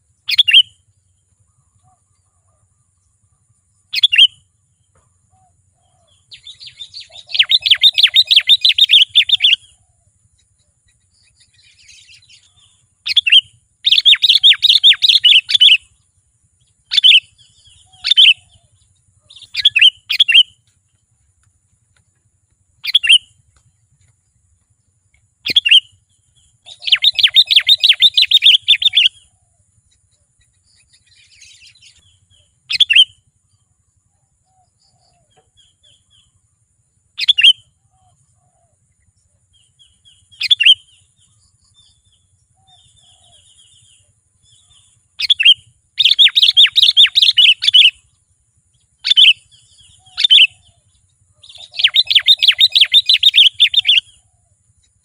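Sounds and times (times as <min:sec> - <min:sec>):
bird whistled notes: 0:00.3 - 0:00.8, 0:04.0 - 0:04.4, 0:05.9 - 0:09.7, 0:11.3 - 0:15.9, 0:16.9 - 0:18.7, 0:19.3 - 0:20.6, 0:22.8 - 0:23.4, 0:25.4 - 0:26.0, 0:26.7 - 0:29.3, 0:30.9 - 0:33.2, 0:37.2 - 0:38.2, 0:40.1 - 0:41.0, 0:44.6 - 0:48.0, 0:51.5 - 0:54.2
bird fast chattering: 0:06.4 - 0:09.6, 0:11.9 - 0:15.8, 0:19.2 - 0:20.5, 0:22.8 - 0:23.3, 0:25.4 - 0:25.9, 0:26.7 - 0:29.2, 0:45.2 - 0:48.0, 0:51.4 - 0:54.1.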